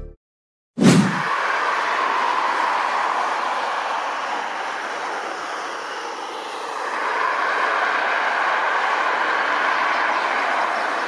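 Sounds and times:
distant jet engines at takeoff: 0:01.0 - 0:11.0.

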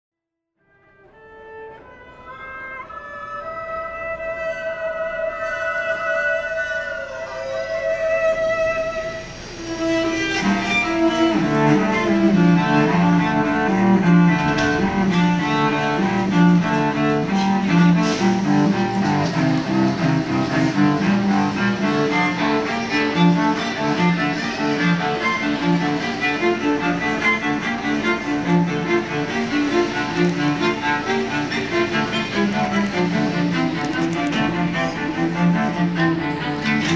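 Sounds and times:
solo cello: 0:00.7 - 0:36.9.

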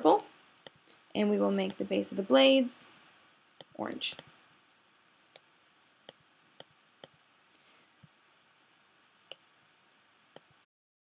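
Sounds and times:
computer mouse clicks: 0:10.3 - 0:10.6.

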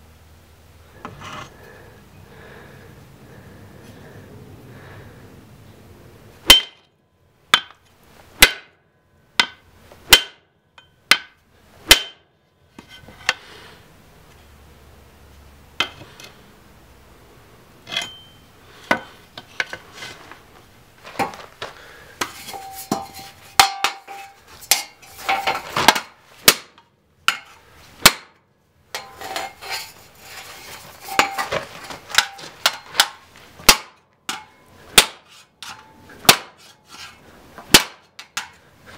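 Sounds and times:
axe chopping into metal: 0:06.5 - 0:06.8, 0:07.5 - 0:07.8, 0:08.4 - 0:08.8, 0:09.4 - 0:10.5, 0:11.1 - 0:12.3, 0:22.2 - 0:29.6, 0:31.0 - 0:36.8, 0:37.6 - 0:38.6.

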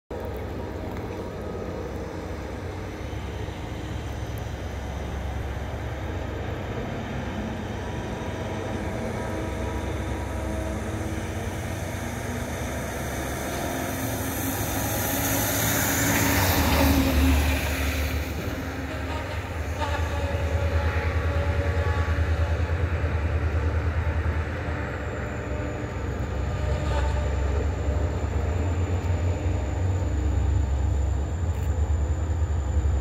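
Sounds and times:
diesel train engine drone: 0:00.1 - 0:33.0
rail and wheel noise: 0:00.1 - 0:33.0.

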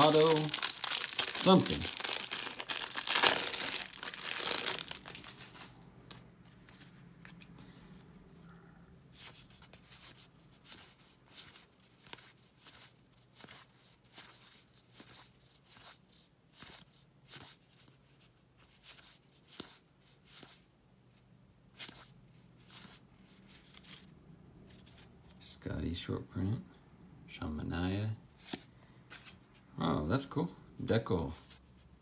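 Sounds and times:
faint low hum: 0:05.0 - 0:10.7.

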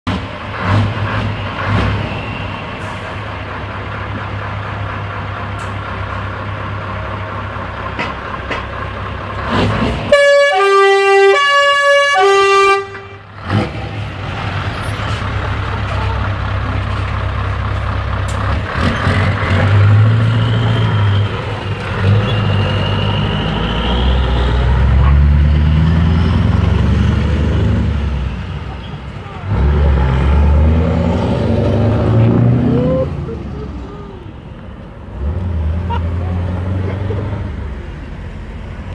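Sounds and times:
truck diesel engine: 0:00.1 - 0:38.9
two-tone air horn: 0:10.1 - 0:13.2.

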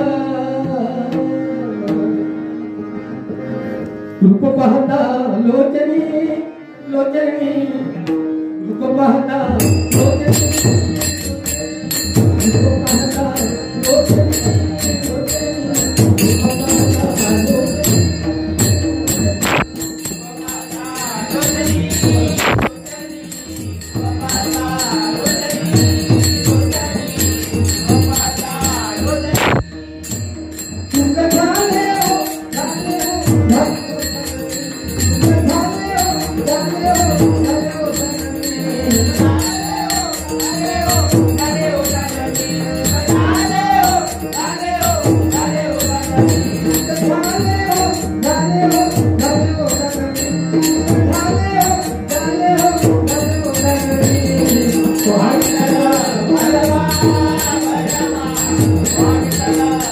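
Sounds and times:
devotional melody: 0:00.0 - 0:59.9
hand cymbals jingling: 0:09.6 - 0:59.9
drum beat: 0:09.7 - 0:34.2.

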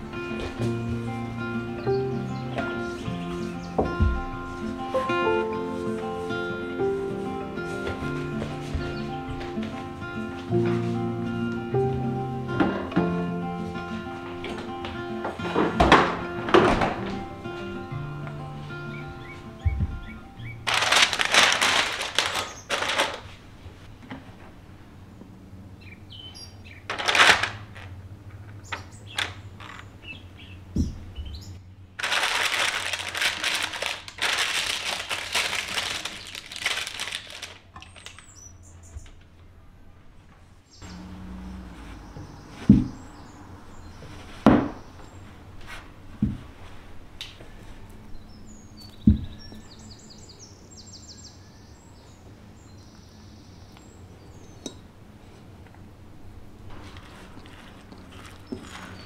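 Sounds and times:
paper crinkling and rustling: 0:18.9 - 0:23.8, 0:26.9 - 0:28.0, 0:32.0 - 0:38.5, 0:56.6 - 0:59.0.

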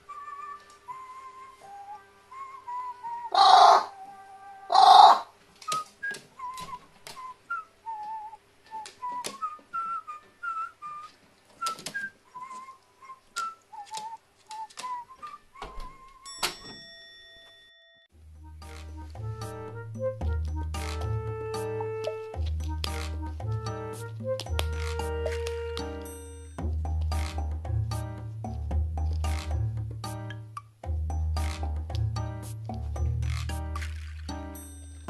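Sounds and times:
whistled background music: 0:00.0 - 0:04.7, 0:05.6 - 0:16.5, 0:18.4 - 0:28.6
ringing chime: 0:16.3 - 0:18.1, 0:26.0 - 0:26.6, 0:34.5 - 0:35.0.

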